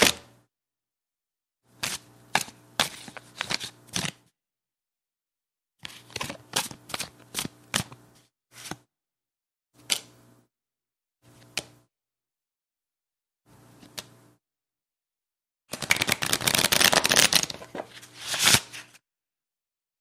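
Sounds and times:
playing cards snapping and flicking: 0:15.7 - 0:18.8.

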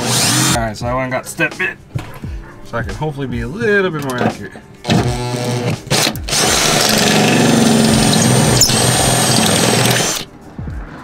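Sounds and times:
cordless drill cutting sheet steel: 0:00.0 - 0:00.6, 0:04.8 - 0:10.3.

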